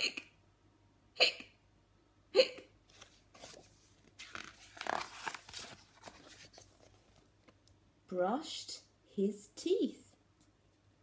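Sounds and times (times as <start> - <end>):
woman imitating hiccups: 0.0 - 0.4, 1.1 - 1.6, 2.3 - 2.8
book pages turning: 2.9 - 7.6.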